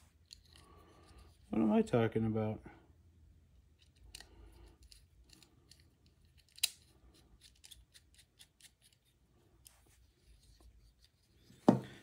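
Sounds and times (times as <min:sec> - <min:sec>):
small screwdriver clicking on screws: 0:03.8 - 0:09.0.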